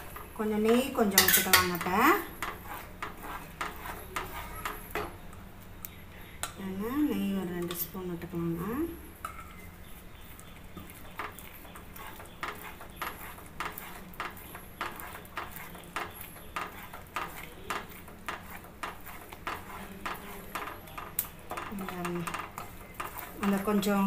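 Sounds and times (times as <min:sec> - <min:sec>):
wooden spatula scraping a pan: 0:00.0 - 0:05.2, 0:09.8 - 0:24.0.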